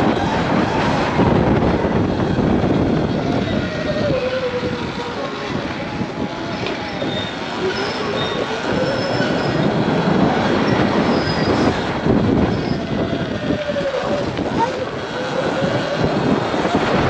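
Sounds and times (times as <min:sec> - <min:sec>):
rushing noise: 0:00.0 - 0:17.0.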